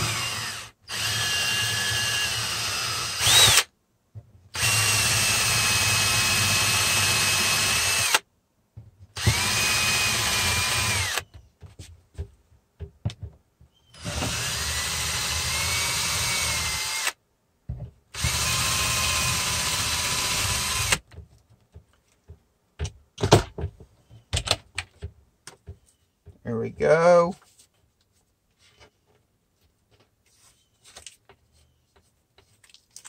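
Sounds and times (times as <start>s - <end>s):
cordless drill whining: 0.0s - 3.7s, 4.5s - 8.2s, 9.2s - 11.4s, 13.8s - 17.2s, 18.2s - 21.0s.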